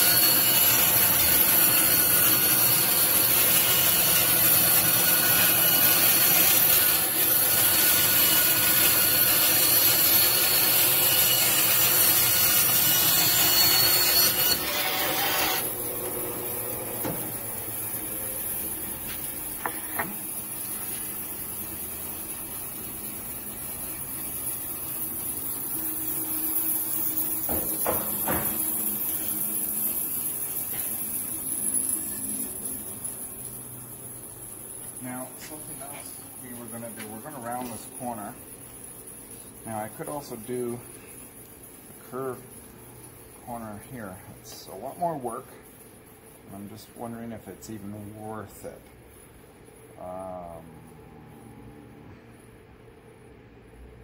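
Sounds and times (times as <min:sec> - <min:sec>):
power tool on wood: 0:00.0 - 0:18.1, 0:26.5 - 0:30.0.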